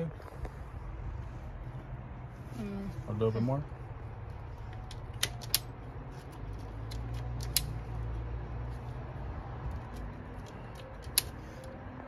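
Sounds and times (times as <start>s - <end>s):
wire strippers clicking: 4.7s - 8.2s, 9.7s - 11.8s.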